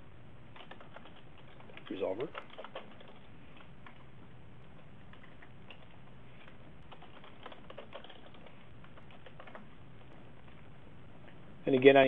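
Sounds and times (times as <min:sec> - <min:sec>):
steady low hum: 0:00.0 - 0:12.0
keyboard keys clicking: 0:00.5 - 0:04.0, 0:06.9 - 0:09.7.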